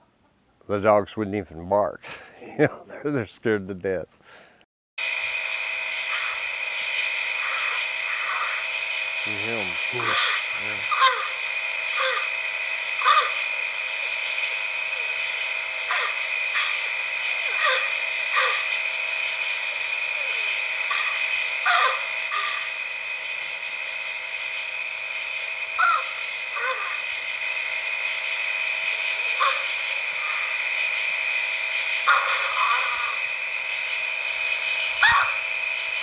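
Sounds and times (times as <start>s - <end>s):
high night chorus: 5.0s - 36.0s
short calls falling in pitch: 10.0s - 12.4s, 13.0s - 13.5s, 20.2s - 22.7s, 25.8s - 27.0s, 35.0s - 35.4s.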